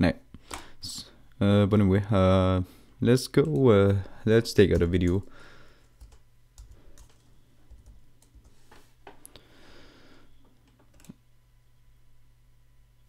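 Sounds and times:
low steady hum: 0.0s - 13.0s
typing on computer keyboard: 5.9s - 8.6s, 10.6s - 11.2s.

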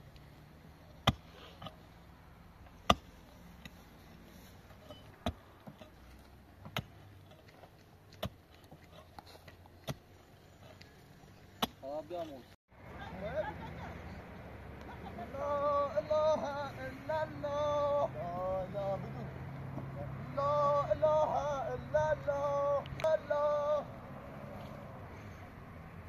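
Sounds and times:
pickaxe striking stony soil: 1.0s - 1.8s, 2.8s - 3.8s, 4.8s - 6.0s, 6.6s - 10.1s, 11.6s - 12.0s.

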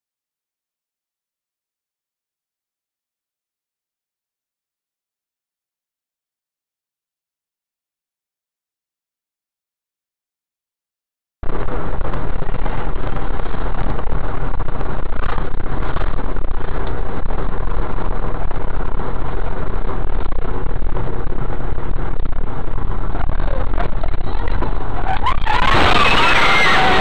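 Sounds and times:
bus engine and road rumble: 11.4s - 27.0s.

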